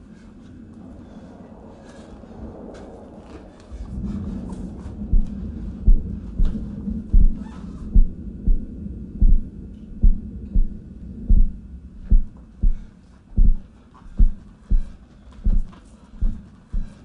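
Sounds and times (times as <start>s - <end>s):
low steady hum: 0.0s - 17.0s
deep rhythmic thuds: 3.5s - 17.0s.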